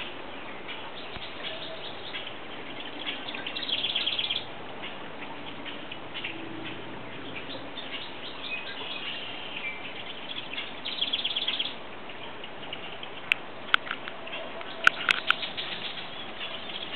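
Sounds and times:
small birds chirping: 0:00.0 - 0:16.9
steady outdoor hiss: 0:00.0 - 0:16.9.

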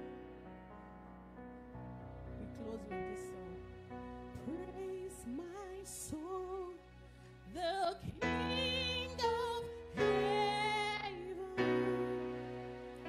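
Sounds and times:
held accompaniment chords: 0:00.0 - 0:07.4
woman singing with vibrato: 0:07.6 - 0:12.4.

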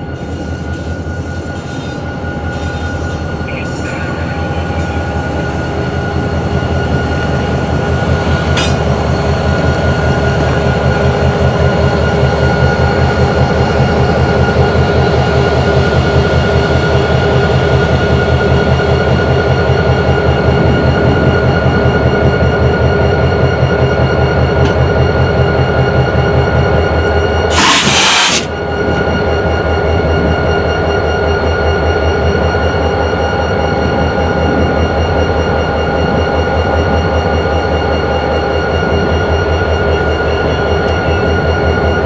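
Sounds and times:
diesel locomotives idling: 0:00.0 - 0:31.8.

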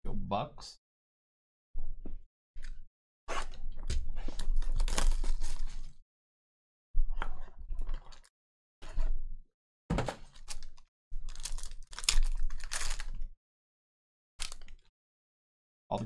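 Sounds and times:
foil wrapper tearing and crinkling: 0:04.4 - 0:06.0, 0:10.4 - 0:13.2, 0:14.4 - 0:14.9.

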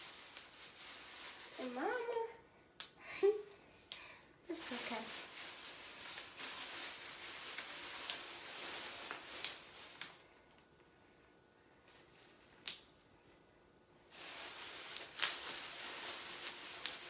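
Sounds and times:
plastic bag rustling: 0:00.0 - 0:02.3, 0:04.5 - 0:12.6, 0:14.1 - 0:17.0.

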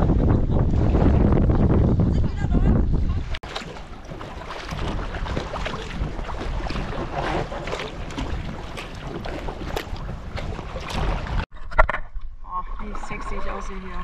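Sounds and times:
wind buffeting microphone: 0:00.0 - 0:11.5
paddle splashing in water: 0:03.0 - 0:11.5.

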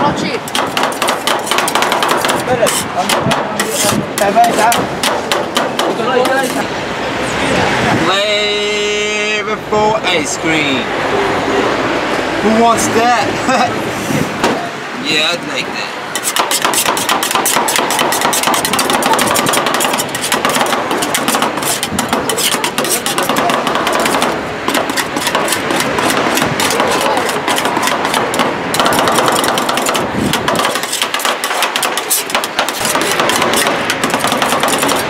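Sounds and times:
metal spatulas chopping on cold plate: 0:00.5 - 0:06.6, 0:16.2 - 0:35.0.

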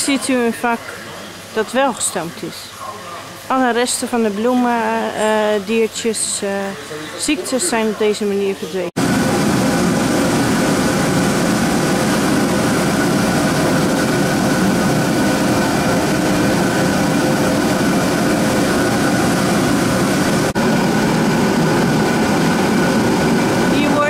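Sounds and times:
steam rushing roar: 0:09.0 - 0:24.0.

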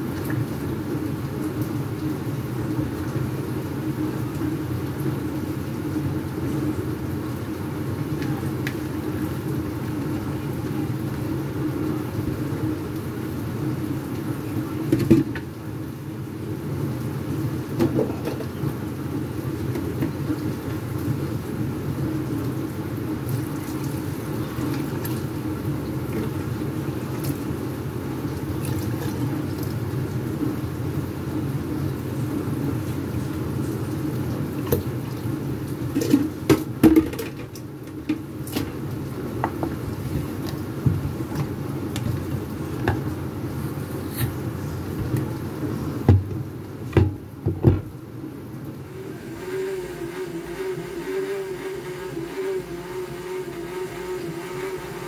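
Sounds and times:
electric blender running: 0:48.9 - 0:55.0.

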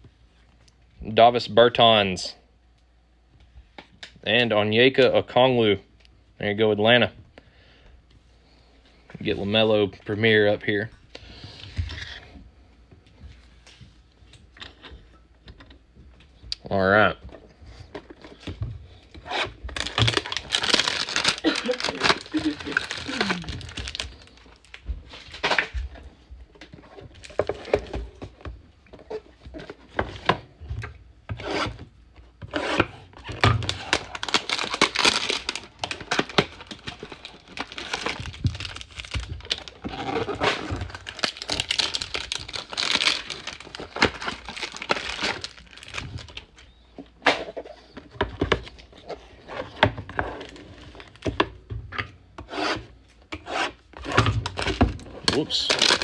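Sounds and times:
cardboard and plastic rustling: 0:17.2 - 0:31.9, 0:33.1 - 0:52.0, 0:53.9 - 0:56.0.

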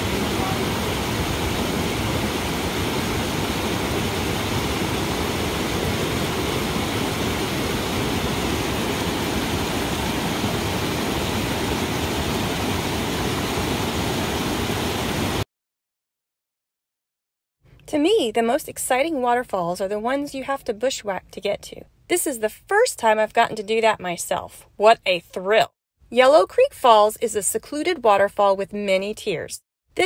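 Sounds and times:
waterfall and creek rushing: 0:00.0 - 0:15.4.

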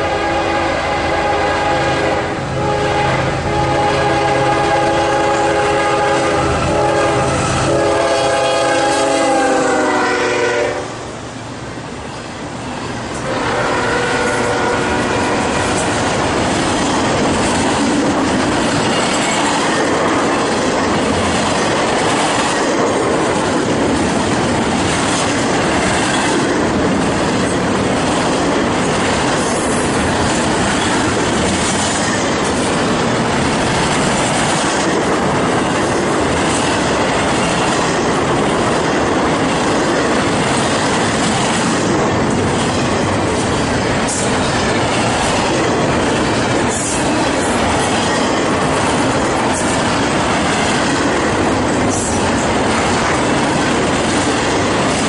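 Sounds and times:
locomotive air horn: 0:00.0 - 0:11.0, 0:13.2 - 0:15.7
freight cars rumbling and clacking: 0:15.3 - 0:55.0.

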